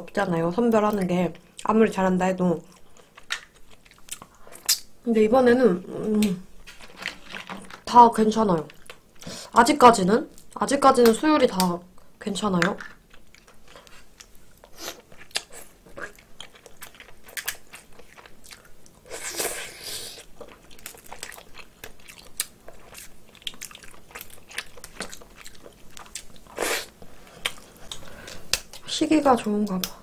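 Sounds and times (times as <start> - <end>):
chewing mouth noise: 20.2 - 28.8
crab shells cracking by hand: 27.5 - 28.8.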